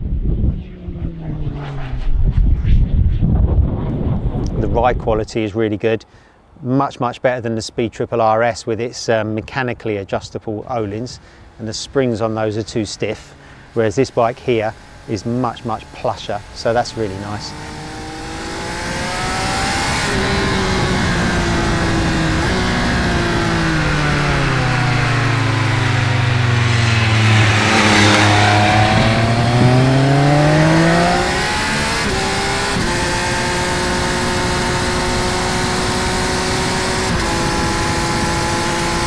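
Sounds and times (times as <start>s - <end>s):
wind and tyre noise: 0.0s - 5.6s, 10.4s - 39.0s
motorcycle engine: 13.2s - 39.0s.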